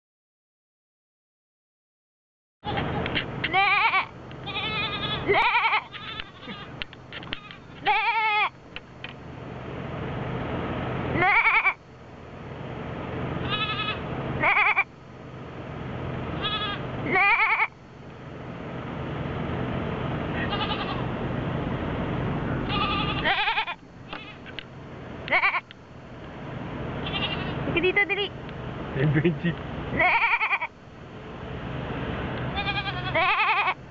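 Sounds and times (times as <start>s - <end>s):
goat bleating: 2.6s - 8.6s, 11.2s - 11.8s, 13.4s - 14.9s, 16.4s - 17.8s, 20.3s - 21.1s, 22.6s - 24.5s, 25.3s - 25.7s, 27.0s - 27.6s, 30.0s - 30.7s, 32.6s - 33.8s
steady background noise: 2.6s - 33.9s.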